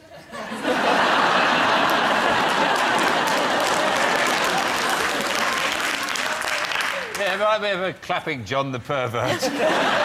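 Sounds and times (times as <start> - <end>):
audience applause: 0.8 - 7.5.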